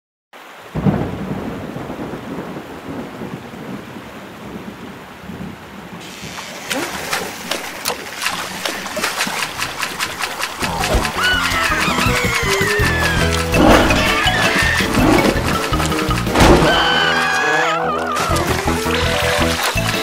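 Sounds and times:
heavy rain: 0.4s - 20.0s
thunder rumble: 0.7s - 17.3s
drips and splashes on water: 6.0s - 17.3s, 18.0s - 20.0s.

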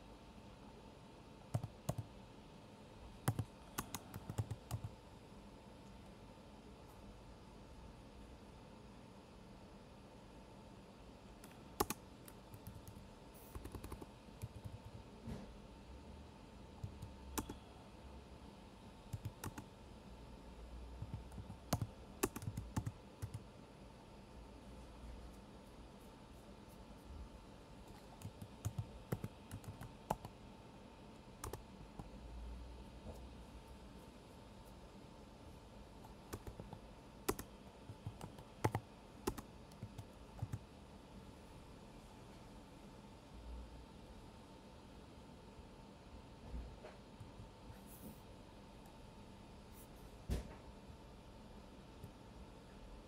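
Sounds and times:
faint low hum: 0.0s - 53.0s
computer keyboard typing: 1.5s - 2.1s, 3.2s - 5.0s, 11.4s - 15.0s, 16.8s - 17.6s, 19.1s - 19.8s, 21.0s - 23.5s, 27.9s - 30.4s, 31.4s - 32.1s, 36.0s - 40.7s.

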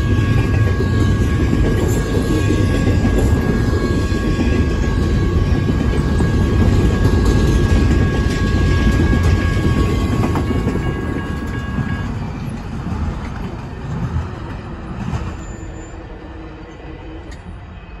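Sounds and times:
freight train rumbling on rails: 0.0s - 18.0s.

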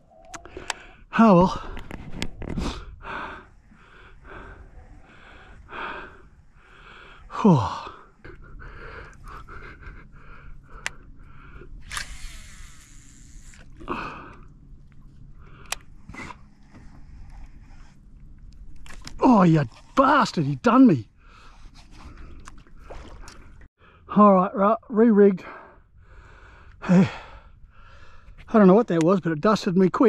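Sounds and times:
fishing reel drag buzzing: 11.8s - 13.8s.

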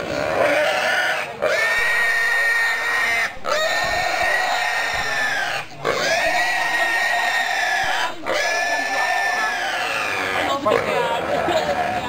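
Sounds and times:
pig squealing: 0.0s - 12.0s.

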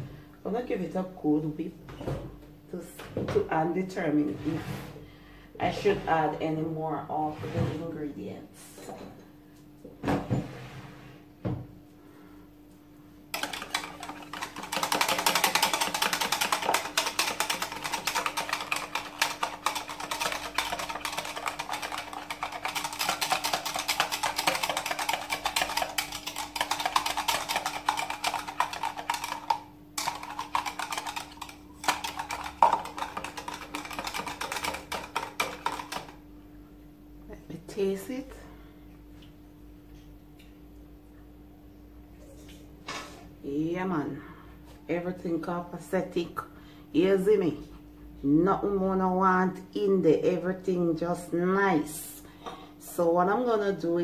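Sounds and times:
whisk rattling against plastic jug: 13.3s - 36.2s.

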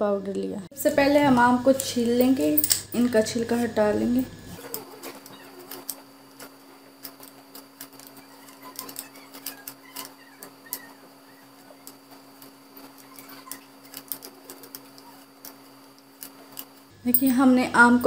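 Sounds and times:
steady low hum: 0.0s - 18.0s
peeler scraping mango skin: 4.6s - 16.8s.

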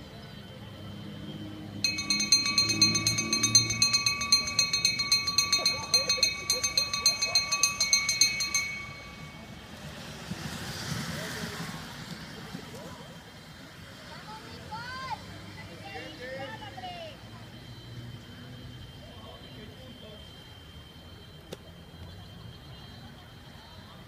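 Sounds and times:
hand bell rung rapidly: 1.8s - 9.6s.

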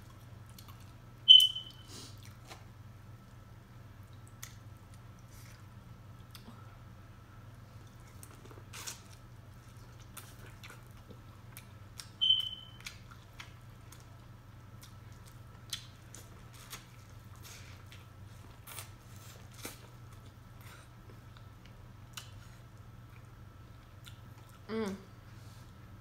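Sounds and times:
faint steady hum: 0.0s - 26.0s
short high beep: 1.3s - 1.9s, 12.2s - 12.8s.

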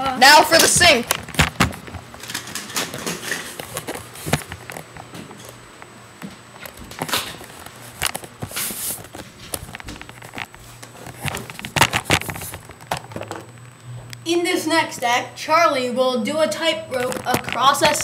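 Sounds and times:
footsteps walking: 0.6s - 14.1s
camera rustling: 0.8s - 13.7s, 16.9s - 18.0s.

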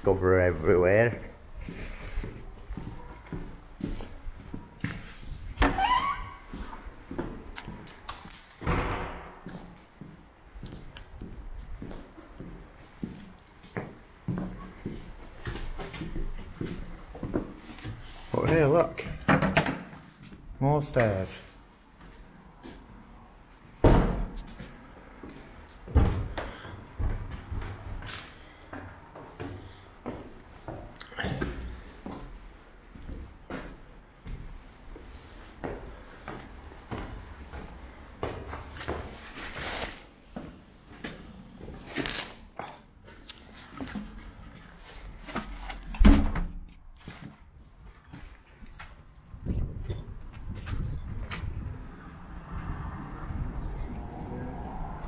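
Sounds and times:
footsteps scuffing on stairs: 1.6s - 7.8s, 9.3s - 18.6s, 23.9s - 39.6s
loud thump: 8.6s - 9.5s
heavy footsteps on stairs: 24.2s - 39.2s.

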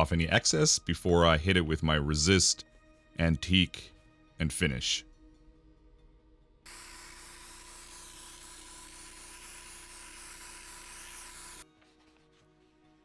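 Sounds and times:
airbrush spraying hiss: 6.7s - 11.6s.

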